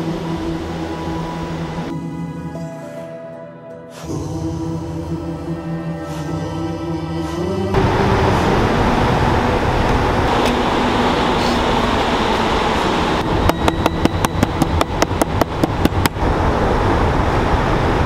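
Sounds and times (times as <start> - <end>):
wind: 6.2 - 18.0.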